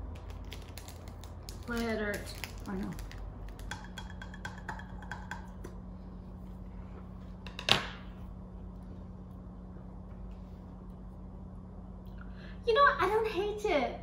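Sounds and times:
plastic wrapper crinkling: 0:00.0 - 0:03.7
steady low hum: 0:00.0 - 0:14.0.

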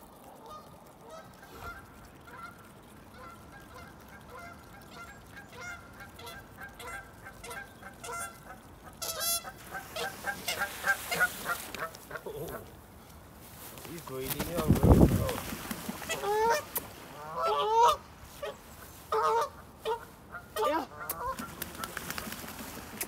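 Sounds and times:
water splashing: 0:00.0 - 0:23.0
geese honking: 0:00.4 - 0:12.2, 0:16.0 - 0:22.0.

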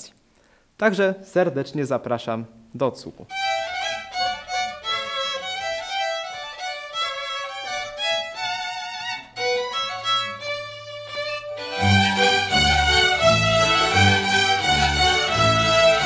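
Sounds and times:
fiddle melody: 0:03.3 - 0:16.0
folk band playing: 0:03.3 - 0:16.0.

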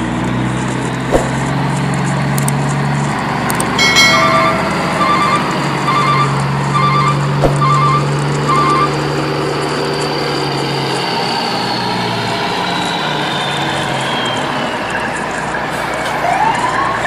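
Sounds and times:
truck engine running: 0:00.0 - 0:17.0
reversing alarm beeping: 0:03.8 - 0:09.1.

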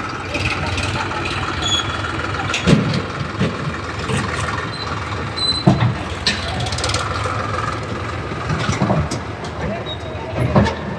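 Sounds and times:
tractor diesel engine running: 0:00.0 - 0:10.9
sharp knocks and clanks: 0:02.4 - 0:07.4, 0:08.4 - 0:09.7.

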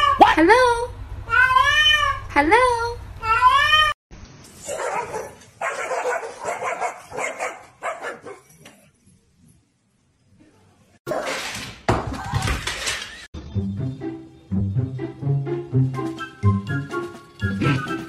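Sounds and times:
dog barking: 0:04.6 - 0:08.5.

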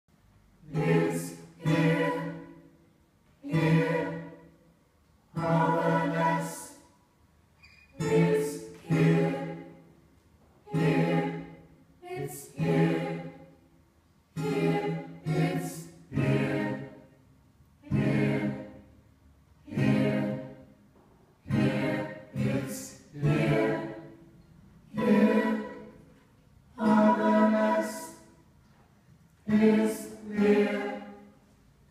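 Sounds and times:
group singing in unison: 0:00.6 - 0:02.7, 0:03.4 - 0:04.5, 0:05.3 - 0:06.9, 0:08.0 - 0:09.8, 0:10.6 - 0:13.6, 0:14.3 - 0:17.2, 0:17.8 - 0:18.9, 0:19.6 - 0:20.7, 0:21.4 - 0:28.4, 0:29.4 - 0:31.5.

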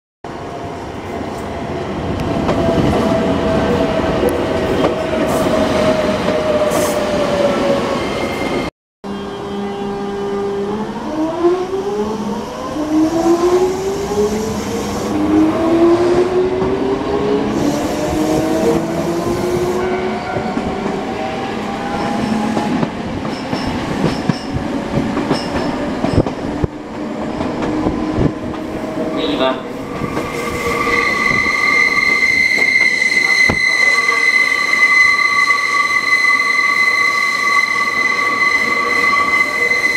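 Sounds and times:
train running noise: 0:13.0 - 0:39.9.

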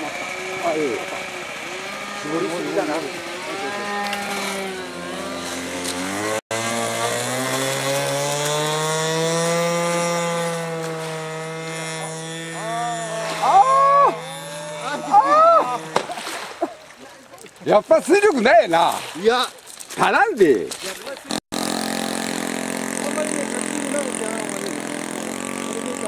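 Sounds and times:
model plane engine running up: 0:00.0 - 0:16.0, 0:21.6 - 0:26.0
model plane engine falling pitch: 0:00.0 - 0:16.1.

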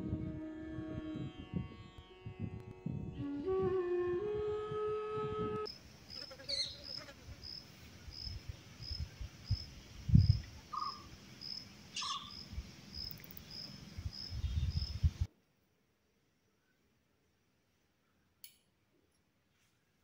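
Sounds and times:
wind rumble on microphone: 0:00.0 - 0:05.7, 0:08.0 - 0:10.6, 0:13.8 - 0:15.3
insect chirping: 0:05.7 - 0:15.3
short bird calls: 0:10.7 - 0:11.1, 0:11.9 - 0:12.4.

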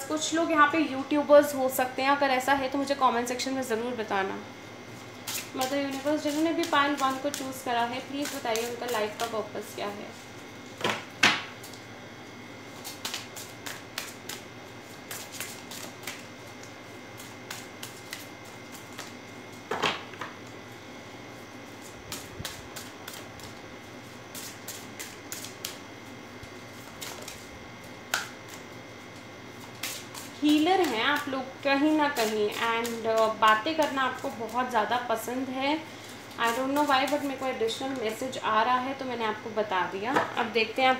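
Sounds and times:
cards being shuffled: 0:05.2 - 0:09.4, 0:12.7 - 0:19.2, 0:24.3 - 0:25.8, 0:26.5 - 0:27.5, 0:29.6 - 0:31.3.

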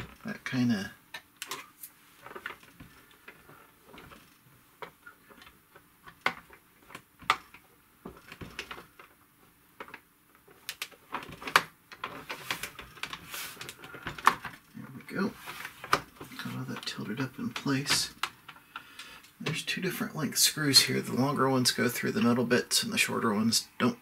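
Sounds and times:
plastic parts clicking and tapping: 0:01.1 - 0:09.2, 0:09.8 - 0:14.7.

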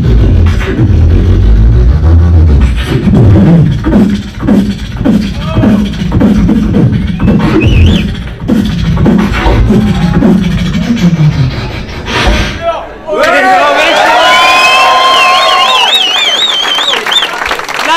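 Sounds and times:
vocal bassline: 0:00.0 - 0:12.7
high whistle-like vocal line: 0:05.4 - 0:12.0.

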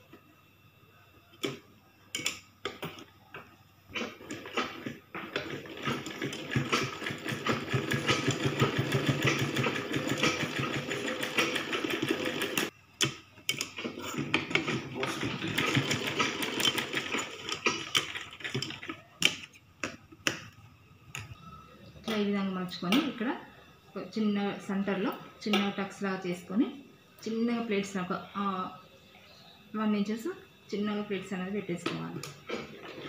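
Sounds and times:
sewing machine running: 0:03.9 - 0:12.7, 0:13.5 - 0:19.1
sewing machine clicks: 0:04.0 - 0:13.8.

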